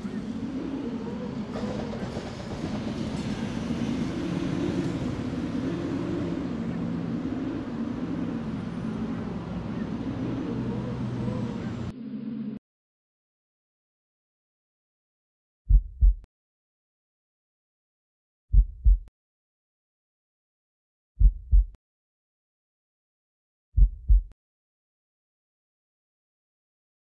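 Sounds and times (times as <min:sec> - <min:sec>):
low rumble of vehicle noise: 0:00.0 - 0:12.6.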